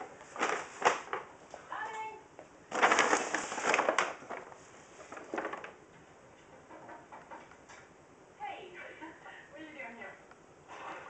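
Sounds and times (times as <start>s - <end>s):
paper bag rustling: 0.0s - 1.4s, 2.7s - 5.8s.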